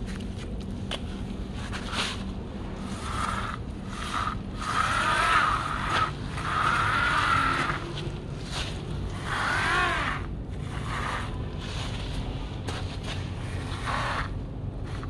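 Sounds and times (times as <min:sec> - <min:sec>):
toy bulldozer scraping through sand: 0:02.8 - 0:12.1, 0:13.4 - 0:15.0.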